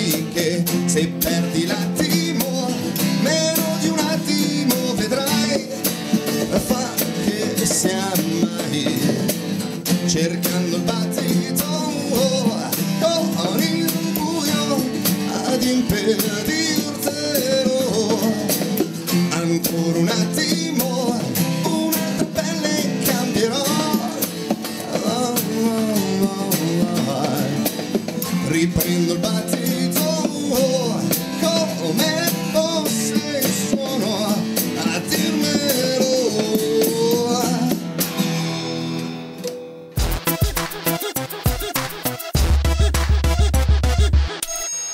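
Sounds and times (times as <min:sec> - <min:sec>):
drums and cymbals: 0:00.0 - 0:38.8, 0:40.0 - 0:44.9
acoustic bass guitar: 0:00.0 - 0:44.4
acoustic guitars strumming: 0:00.0 - 0:44.6.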